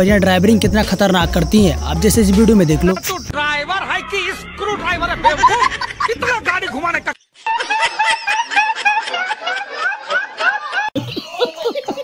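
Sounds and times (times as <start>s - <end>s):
man laughing: 3.8s - 12.0s.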